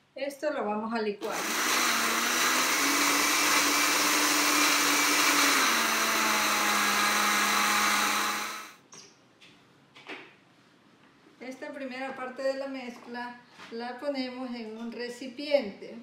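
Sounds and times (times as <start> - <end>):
blender motor running: 1.2 - 8.8.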